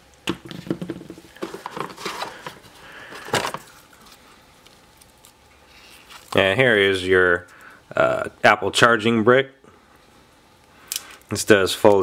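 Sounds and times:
packaging rustling: 0.4 - 6.5.

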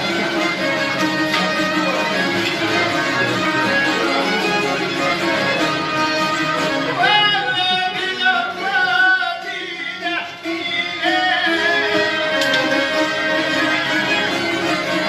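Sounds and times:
strummed lutes: 0.0 - 15.0
man singing folk melody: 7.0 - 13.8.

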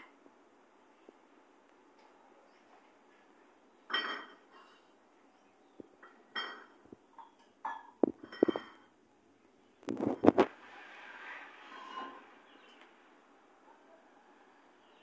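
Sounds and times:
dishes clinking and knocking: 3.9 - 4.8, 5.8 - 8.9.

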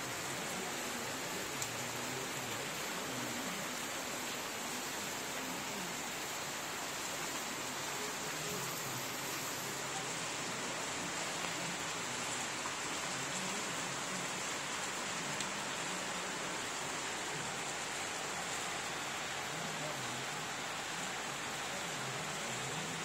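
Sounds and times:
heavy rain pouring: 0.0 - 23.0.

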